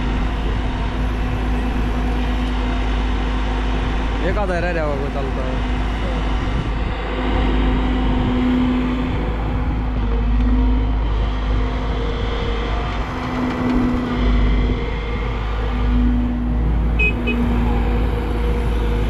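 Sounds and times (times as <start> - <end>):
excavator diesel engine droning: 0.0 - 19.0.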